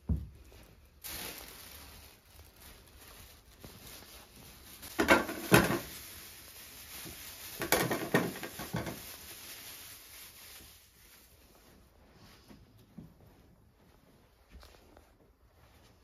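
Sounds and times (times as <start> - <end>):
plastic bag crinkling: 0.0 - 11.7
potatoes knocking on metal tray: 5.0 - 5.9, 7.6 - 9.0.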